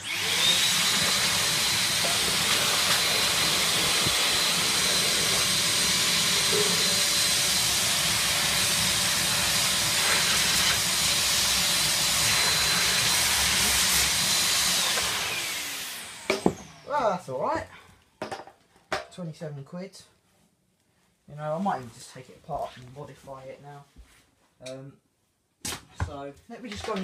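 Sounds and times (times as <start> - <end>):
vacuum cleaner running: 0.0 - 17.0.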